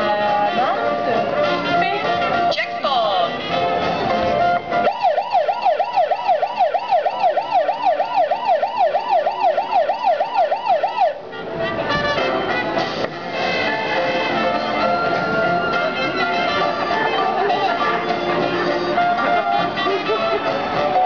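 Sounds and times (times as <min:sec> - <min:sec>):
lively music: 0:00.0 - 0:21.0
warbling electronic siren: 0:04.8 - 0:11.2.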